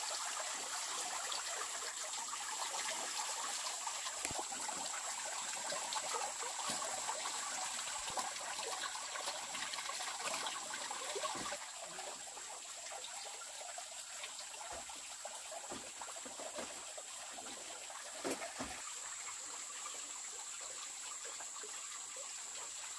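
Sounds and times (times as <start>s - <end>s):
water splashing onto bamboo slats: 9.5s - 11.7s, 15.5s - 18.9s.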